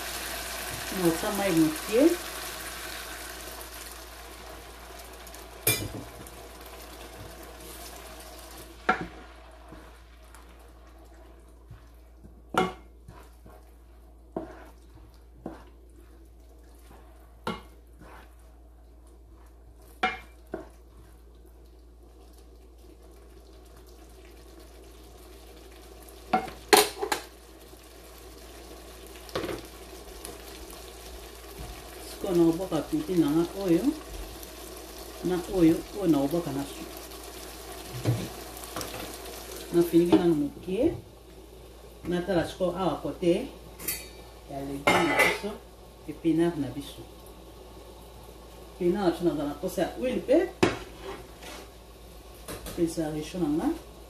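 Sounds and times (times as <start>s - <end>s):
sauce simmering in a frying pan: 0.0s - 54.0s
wooden spatula knocking a pan: 8.8s - 9.2s, 11.7s - 13.0s, 17.4s - 17.8s, 20.0s - 20.8s, 50.6s - 50.9s.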